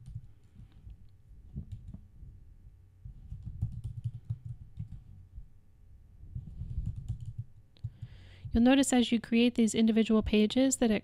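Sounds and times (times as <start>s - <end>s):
computer keyboard typing: 3.3s - 5.1s, 6.7s - 8.1s.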